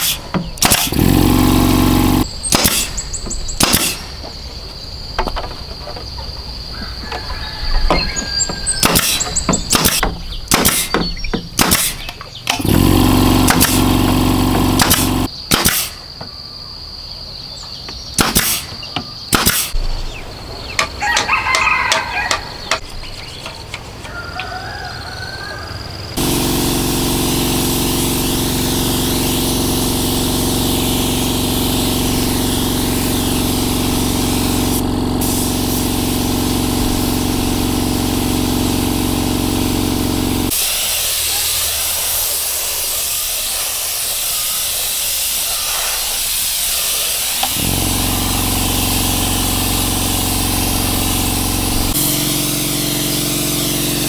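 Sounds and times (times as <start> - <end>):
nail gun firing: 0.0 - 3.0, 3.6 - 4.2, 8.8 - 16.1, 18.2 - 19.8
air compressor motor running: 0.0 - 4.0, 11.6 - 15.3, 26.2 - 54.0
spray gun air hiss: 0.0 - 4.1, 8.5 - 10.0, 11.6 - 16.0, 26.2 - 54.0
chickens calling: 5.8 - 10.6, 20.1 - 26.2.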